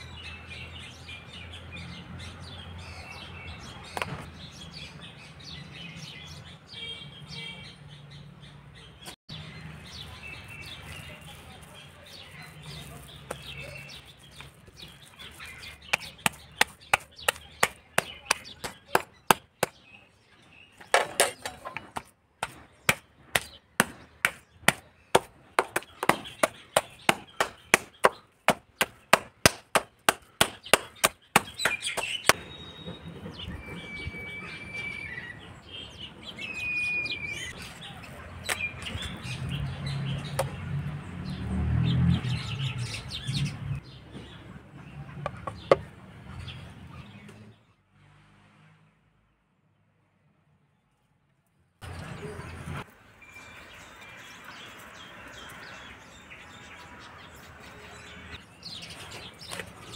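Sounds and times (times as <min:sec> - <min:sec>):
mallet pounding meat on stone: 0:15.9 - 0:19.8, 0:22.4 - 0:32.1
bird chirps: 0:30.3 - 0:40.7, 0:51.8 - 0:59.9.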